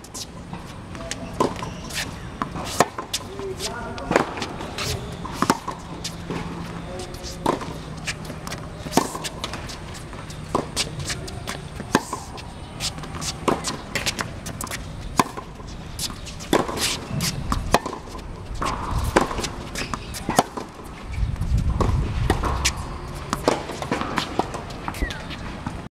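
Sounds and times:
rackets striking tennis ball: 0.0s - 21.1s, 21.7s - 25.8s
tennis ball bouncing: 0.0s - 25.8s.

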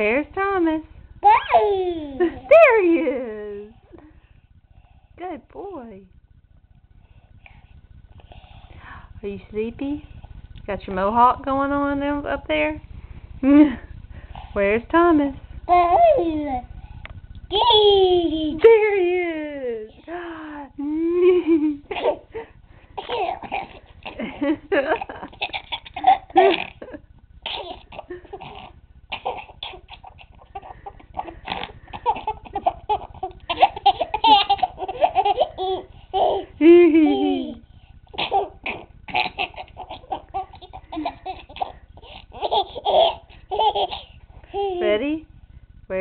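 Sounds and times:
baby laughing: 15.7s - 16.7s, 17.5s - 18.6s, 21.8s - 22.3s, 23.0s - 44.9s.

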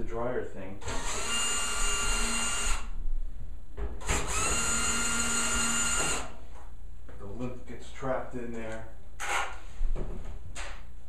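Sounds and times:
cordless drill motor whine: 0.8s - 2.9s, 4.0s - 6.3s.

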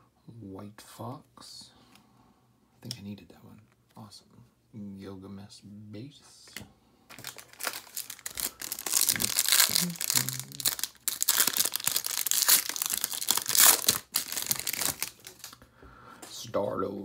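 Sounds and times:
foil wrapper crinkling and tearing: 7.1s - 15.6s.

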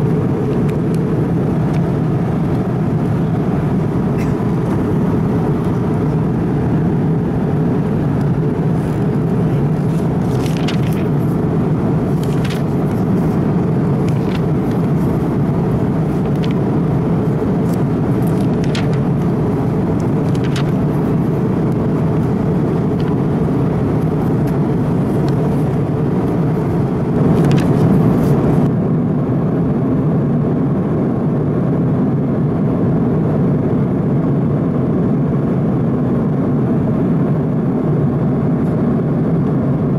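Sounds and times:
aircraft engines and airflow rushing: 0.0s - 39.9s
magazine pages rustling: 8.2s - 28.7s.

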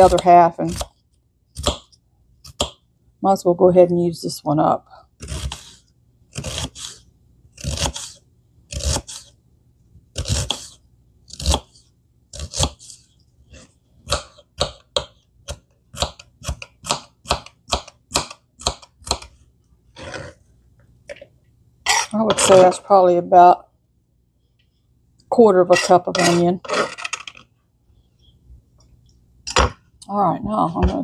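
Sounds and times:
knife chopping onion on board: 0.0s - 0.9s, 11.3s - 11.7s, 14.0s - 19.3s.

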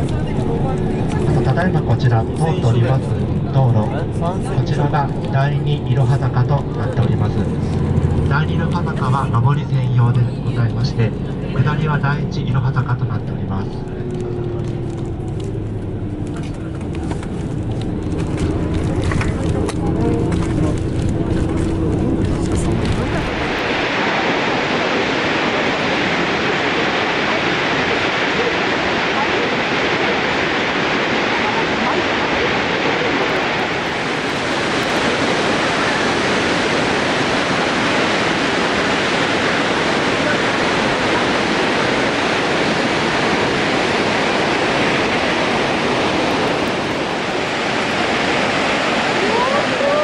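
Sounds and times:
waterfall rushing: 0.0s - 50.0s.

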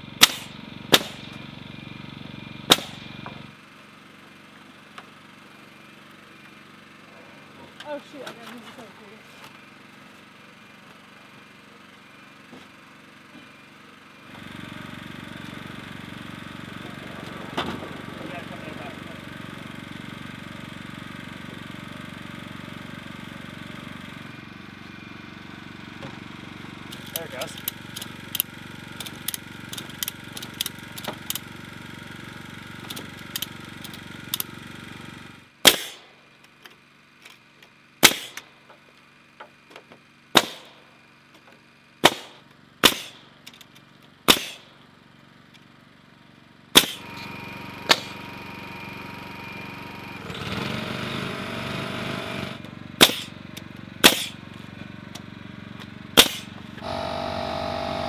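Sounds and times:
pneumatic nailer shots: 0.2s - 1.6s, 2.6s - 3.4s, 26.9s - 31.6s, 35.6s - 36.2s, 38.0s - 38.6s, 40.3s - 40.9s, 42.0s - 43.4s, 44.2s - 44.8s, 46.7s - 54.5s, 56.2s - 58.0s
steady hum: 14.2s - 31.5s, 56.2s - 58.0s.

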